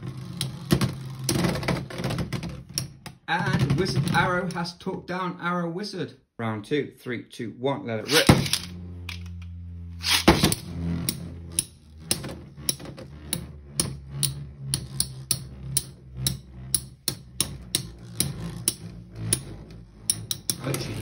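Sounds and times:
low steady hum: 0:08.0 - 0:21.0
spinning tops clacking: 0:20.1 - 0:20.7.

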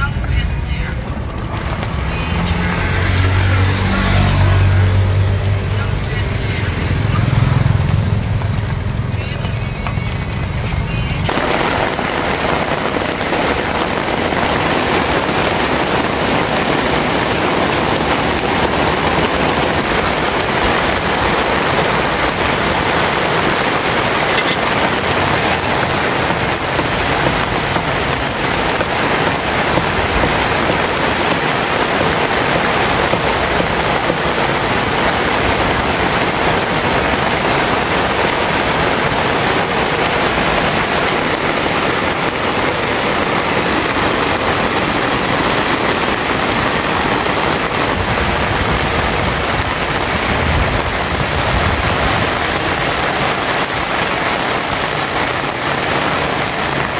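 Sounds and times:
heavy rain pouring: 0:00.0 - 0:56.9.

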